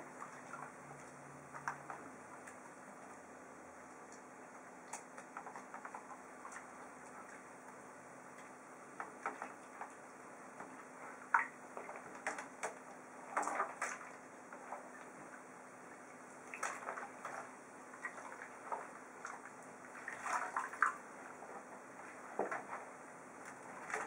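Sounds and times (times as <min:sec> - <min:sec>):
hands splashing water in tub: 0:08.4 - 0:15.2, 0:16.4 - 0:24.0.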